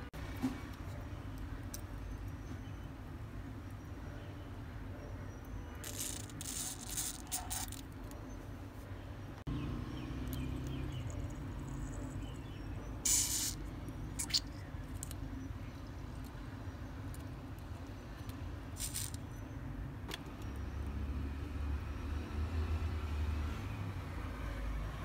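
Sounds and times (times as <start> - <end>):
short hissing: 13.0 - 13.6
plastic syringe squirting and clicking: 13.1 - 13.6, 14.2 - 15.2.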